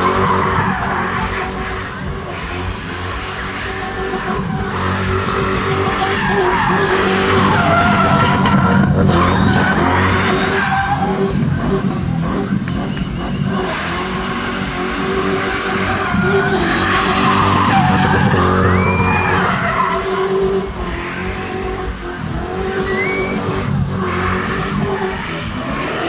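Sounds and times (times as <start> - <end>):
car engine running hard: 0.0 - 26.0
tyres screeching: 3.3 - 11.4.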